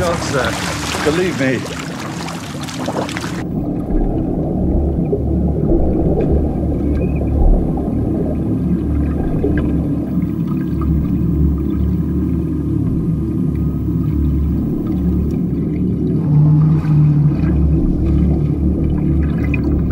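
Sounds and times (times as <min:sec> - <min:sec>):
surface water noise: 0:00.0 - 0:05.0
muffled underwater rumbling: 0:00.0 - 0:19.9.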